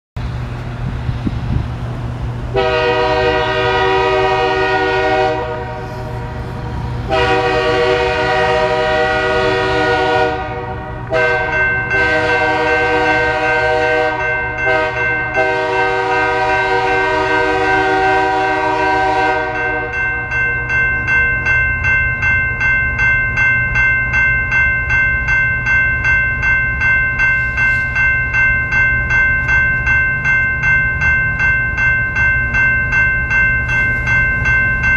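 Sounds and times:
crossing warning bell ringing: 1.8 - 34.9
locomotive horn blasts: 2.5 - 20.1.

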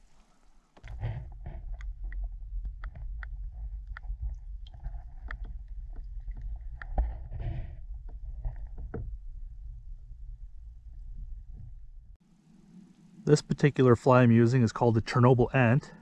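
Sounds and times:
water sloshing: 0.0 - 13.3
underwater clicks and knocks: 0.8 - 12.0
muffled underwater rumble: 0.8 - 14.0.

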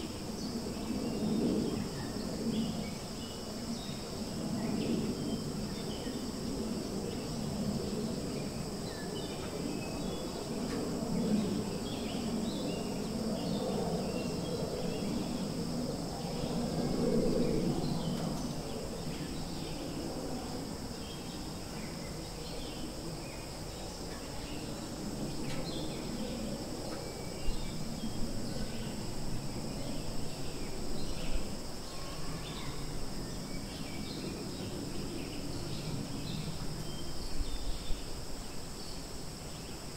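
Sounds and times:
insect chorus: 0.0 - 39.9.

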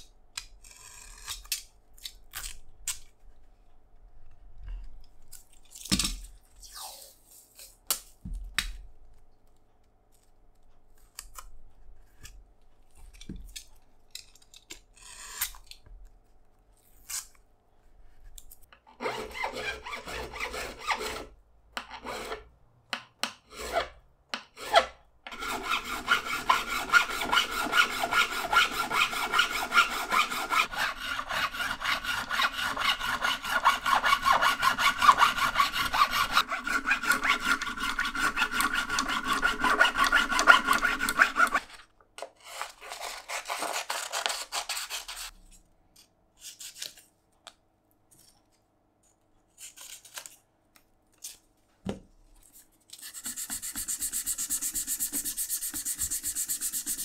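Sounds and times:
abrasive filing strokes: 19.0 - 21.4, 22.0 - 22.5, 23.4 - 41.7, 53.0 - 57.0.

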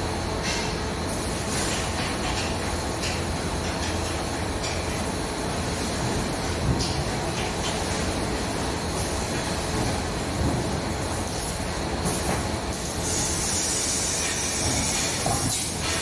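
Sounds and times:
steel rim hissing and squealing: 13.0 - 16.0.

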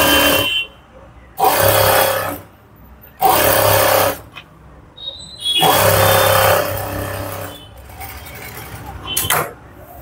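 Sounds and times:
electric sewing machine running: 1.4 - 2.4, 3.2 - 4.2, 5.6 - 7.5.

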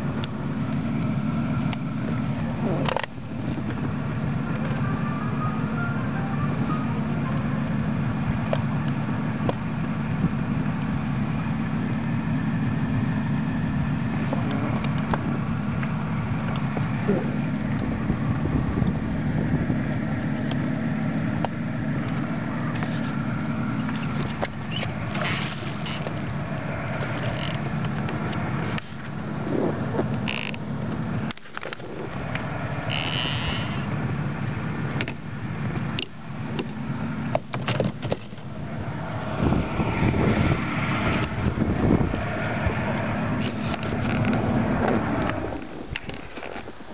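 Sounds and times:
outboard engine idling: 0.0 - 46.9
clicks and knocks on boat: 35.8 - 38.5.

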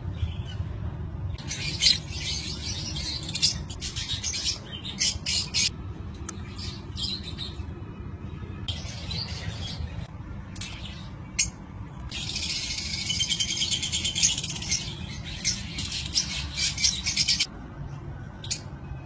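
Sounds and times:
lovebirds raspy squawks: 1.4 - 5.7, 10.6 - 17.5.

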